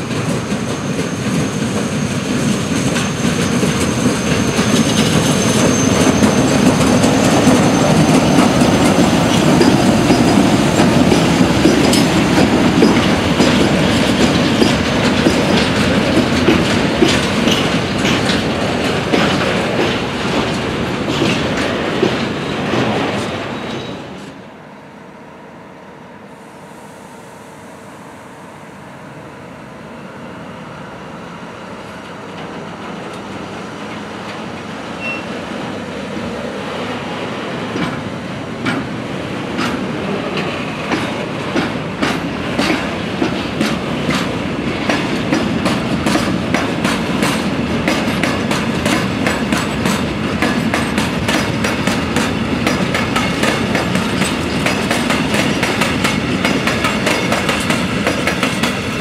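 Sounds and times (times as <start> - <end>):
wheels clacking over rail joints: 0.0 - 23.9, 37.6 - 59.0
freight train rolling past: 0.0 - 59.0.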